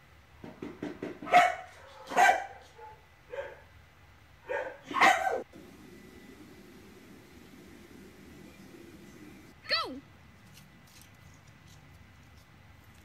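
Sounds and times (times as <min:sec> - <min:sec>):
dog barking: 0:01.2 - 0:03.7, 0:04.4 - 0:05.5.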